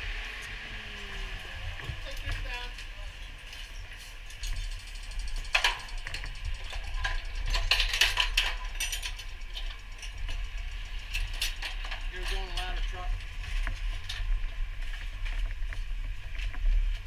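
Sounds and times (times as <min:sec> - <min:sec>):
machinery humming: 0:00.0 - 0:13.6
equipment clicking and rattling: 0:02.0 - 0:17.0.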